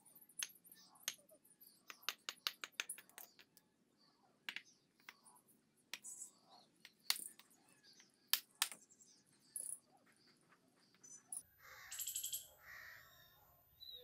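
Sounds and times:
birds calling: 0:06.1 - 0:14.0.

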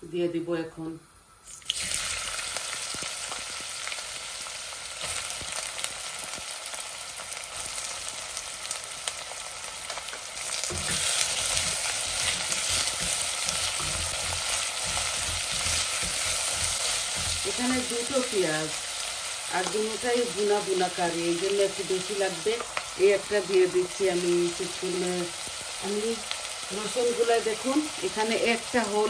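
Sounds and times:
onions sizzling in hot oil: 0:01.2 - 0:29.0
wooden spoon stirring in pot: 0:10.0 - 0:20.0.

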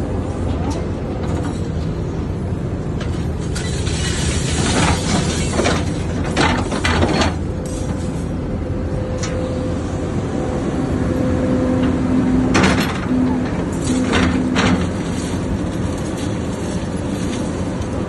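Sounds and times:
excavator engine running: 0:00.0 - 0:18.0
steady whine: 0:06.1 - 0:18.0
scrap metal clanking: 0:12.5 - 0:17.6.

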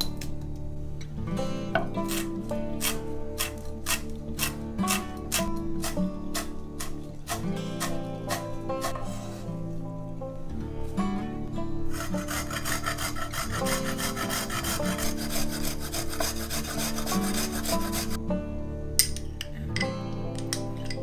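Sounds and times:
background music: 0:00.0 - 0:21.0
garlic scraping on a grater: 0:02.0 - 0:09.1, 0:11.9 - 0:18.2.

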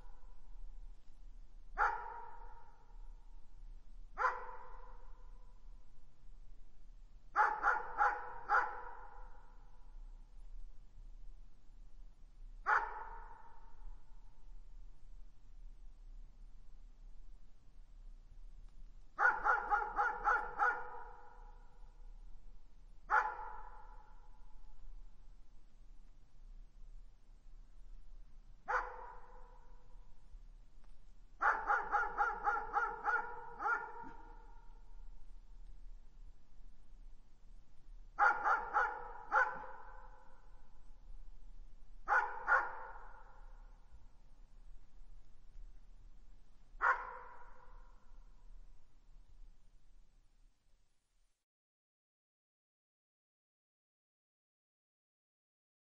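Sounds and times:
dog barking with echo: 0:01.8 - 0:02.8, 0:04.2 - 0:05.3, 0:07.4 - 0:09.6, 0:12.6 - 0:13.8, 0:19.2 - 0:21.6, 0:23.1 - 0:24.2, 0:28.7 - 0:29.8, 0:31.4 - 0:34.8, 0:38.2 - 0:40.4, 0:42.1 - 0:43.7, 0:46.8 - 0:48.0.

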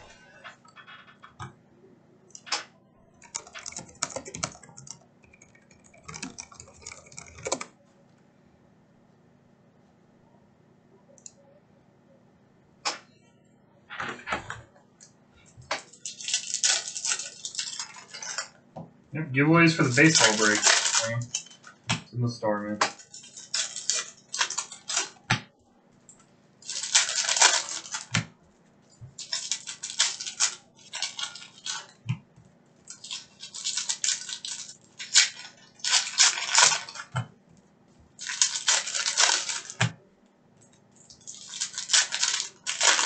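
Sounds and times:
foil wrappers crinkling and tearing: 0:15.8 - 0:18.5, 0:19.6 - 0:21.8, 0:22.9 - 0:25.2, 0:26.6 - 0:28.2, 0:29.2 - 0:32.0, 0:32.8 - 0:37.2, 0:38.2 - 0:39.9, 0:41.0 - 0:43.0.

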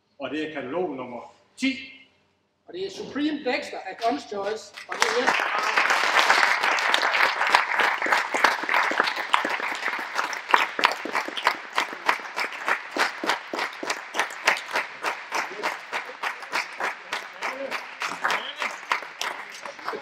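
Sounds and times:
audience applauding: 0:04.8 - 0:20.0.

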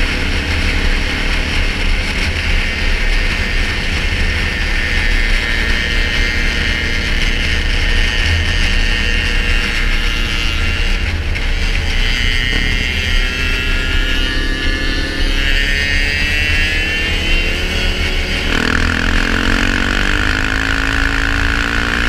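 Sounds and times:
wind rumble on microphone: 0:00.0 - 0:14.9
quad bike engine running: 0:00.0 - 0:22.0.

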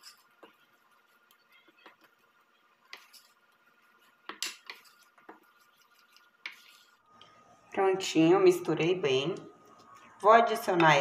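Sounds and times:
spoon scraping batter in bowl: 0:00.0 - 0:07.0.

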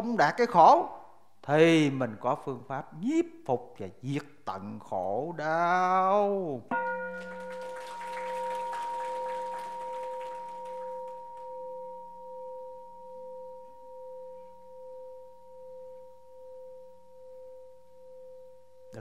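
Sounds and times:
bowl bell ringing: 0:06.7 - 0:19.0.

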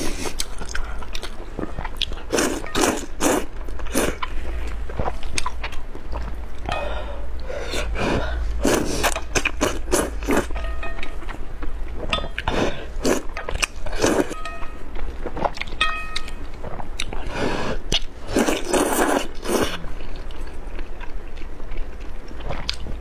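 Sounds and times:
slurping and chewing noodles: 0:00.0 - 0:06.4, 0:07.6 - 0:10.5, 0:12.4 - 0:14.4, 0:16.6 - 0:21.4.

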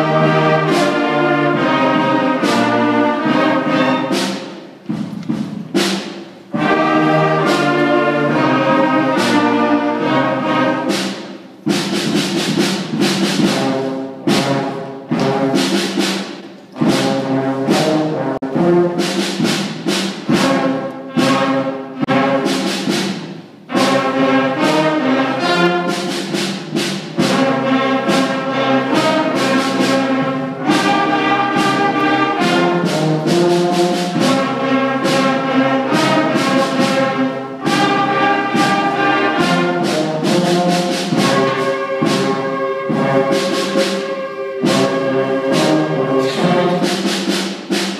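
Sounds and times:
school concert band playing: 0:00.0 - 0:47.9
flutes: 0:41.2 - 0:46.7.

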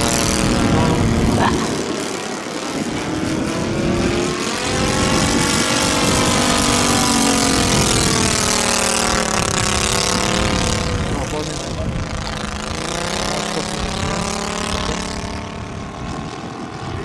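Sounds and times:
model plane engine overhead: 0:00.0 - 0:17.0.

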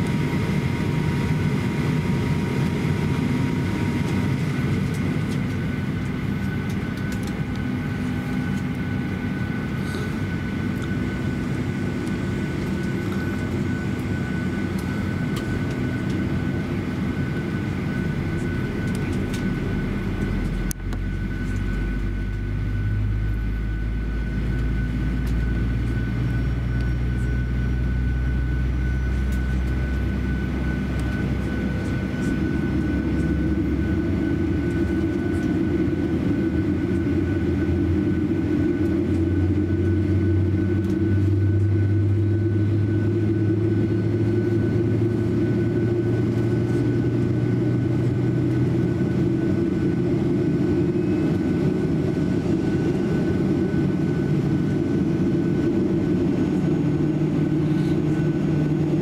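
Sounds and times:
deep low rumble: 0:16.9 - 0:54.0.

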